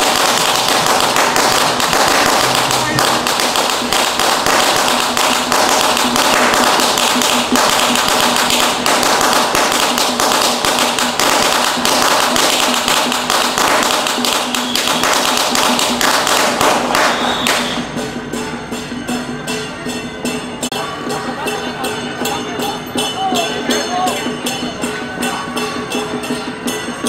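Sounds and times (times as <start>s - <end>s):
firecrackers crackling: 0.0s - 18.0s.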